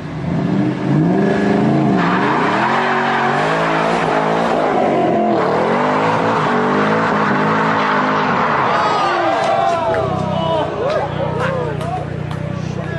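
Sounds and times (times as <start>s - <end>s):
car engine revving hard: 0.0s - 9.4s.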